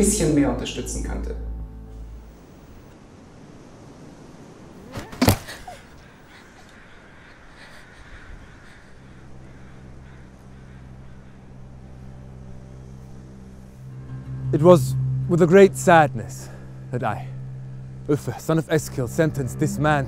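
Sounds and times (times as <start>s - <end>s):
low steady hum: 0.0s - 3.4s, 4.9s - 20.0s
faint crow caws: 5.1s - 14.0s.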